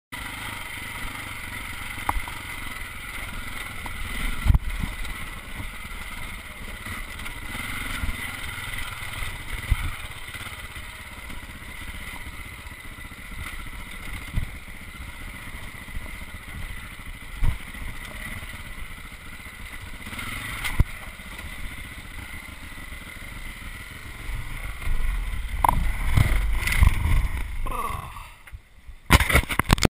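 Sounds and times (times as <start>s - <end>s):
dirt bike engine running: 0.2s - 29.8s
bike knocking on rocks: 25.0s - 27.7s.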